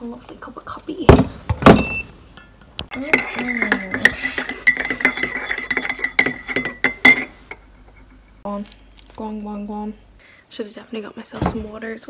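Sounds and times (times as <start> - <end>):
teaspoon stirring in ceramic mug: 2.9 - 8.1.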